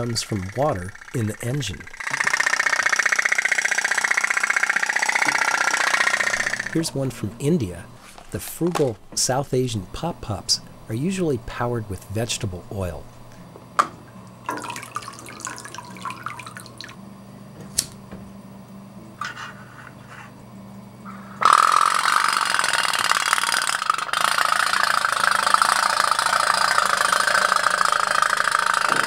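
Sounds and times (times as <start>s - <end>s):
toy steamboat engine popping: 0.0s - 6.8s, 21.4s - 29.0s.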